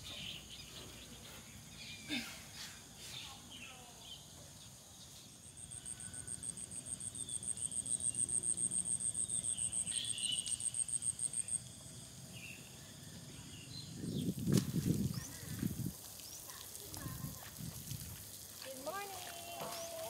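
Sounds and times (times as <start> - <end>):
insect pulsed trill: 5.4 - 14.4.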